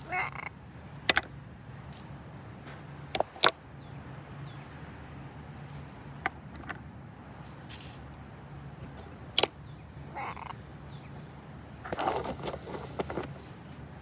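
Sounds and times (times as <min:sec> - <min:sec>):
parrots calling: 0:00.0 - 0:00.8, 0:09.0 - 0:13.3
low steady hum: 0:00.0 - 0:14.0
scratchy sounds: 0:11.9 - 0:13.6.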